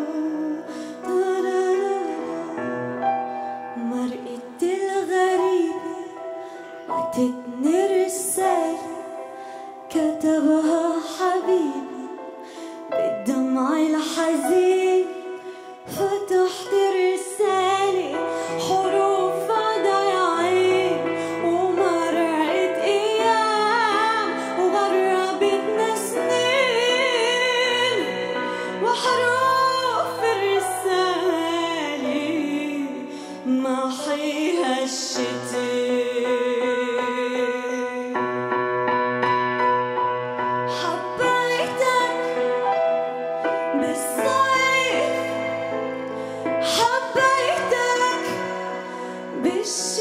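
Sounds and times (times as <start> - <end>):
woman singing: 0.0 - 38.4, 40.7 - 50.0.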